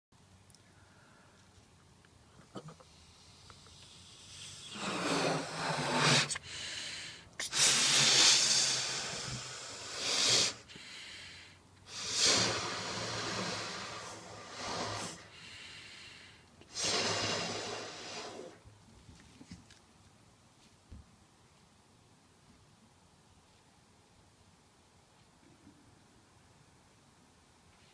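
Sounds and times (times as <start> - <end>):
air hissing through balloon neck: 2.8 - 18.6.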